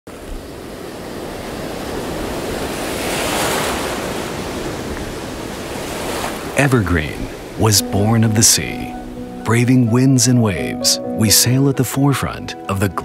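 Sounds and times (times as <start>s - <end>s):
ocean waves washing: 0.1s - 13.0s.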